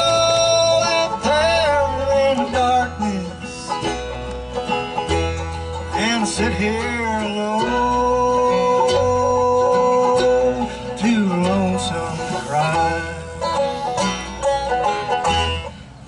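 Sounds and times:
man singing: 0.0s - 3.9s, 5.9s - 13.5s
banjo: 0.0s - 16.0s
bass: 0.0s - 16.0s
strummed acoustic guitar: 0.0s - 16.0s.

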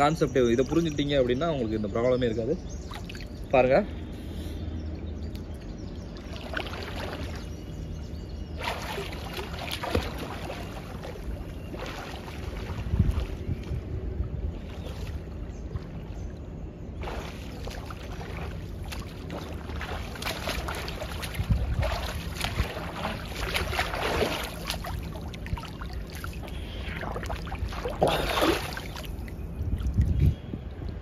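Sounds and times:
low wind rumble: 0.0s - 31.0s
swimmer splashing water: 6.1s - 7.9s, 8.5s - 13.6s, 14.5s - 30.1s
rush of water: 8.6s - 13.6s, 17.0s - 30.2s.

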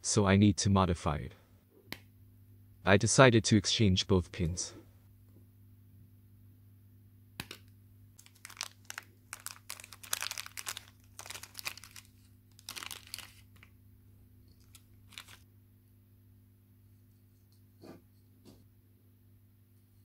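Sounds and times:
plastic bag crinkling: 8.2s - 13.7s, 14.5s - 15.4s.

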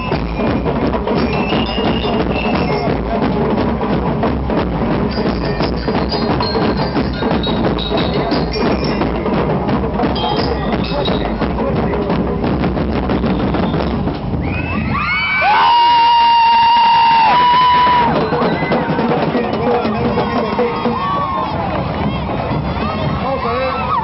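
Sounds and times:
drums beating: 0.0s - 24.0s
high ringing bell lyre notes: 5.1s - 9.3s.

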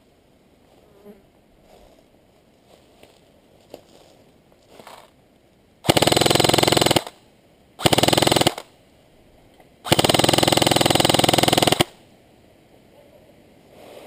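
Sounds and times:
airsoft rifle full-auto bursts: 5.8s - 7.2s, 7.8s - 8.7s, 9.9s - 12.0s.

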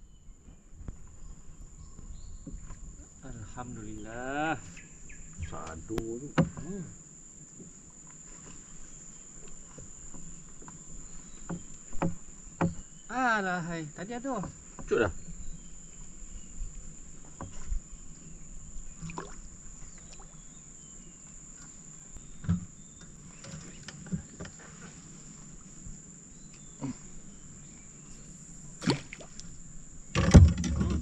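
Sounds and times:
river ambience: 0.0s - 31.0s
high insect drone: 1.1s - 31.0s
gear knocking in a boat: 9.5s - 13.1s, 30.1s - 31.0s
bump and clatter: 30.1s - 31.0s.

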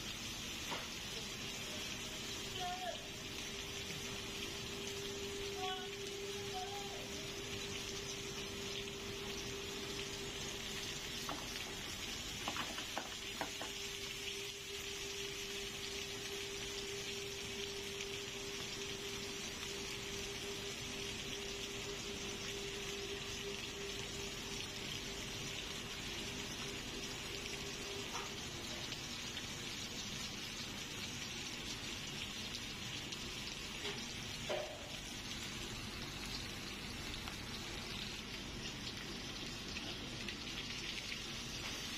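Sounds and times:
faint steady hum: 0.0s - 41.9s
steak sizzling in oil: 0.0s - 41.9s
oil popping: 8.7s - 13.8s.

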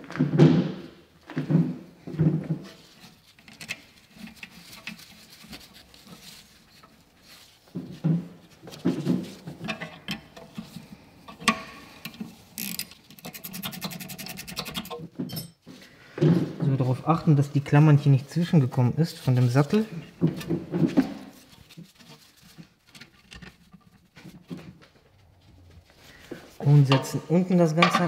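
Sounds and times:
metal parts scraping: 9.6s - 15.5s.

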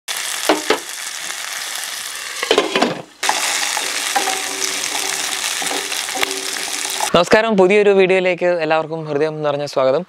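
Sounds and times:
onions sizzling in hot oil: 0.1s - 7.2s.

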